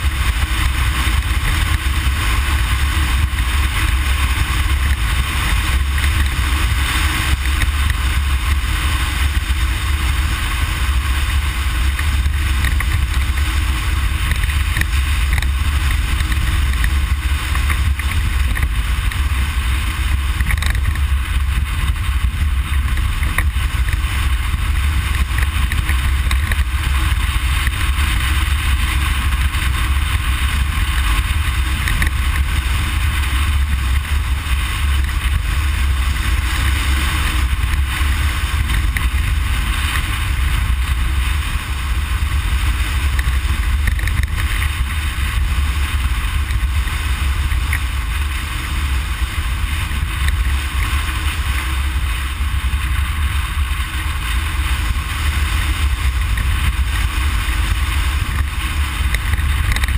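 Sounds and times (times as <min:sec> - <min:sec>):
engine rumble: 0:00.0 - 0:59.9
wind: 0:00.0 - 0:59.9.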